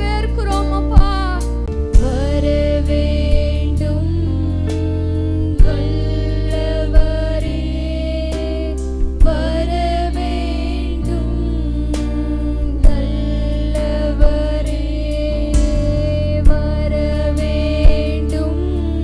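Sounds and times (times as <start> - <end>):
women singing together: 0.0 - 19.0
band with bass and drums: 15.5 - 18.2.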